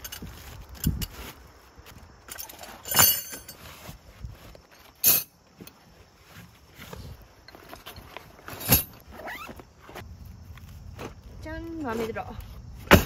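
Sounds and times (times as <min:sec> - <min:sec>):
metal tent pegs clinking: 0:00.0 - 0:05.8, 0:07.4 - 0:09.6.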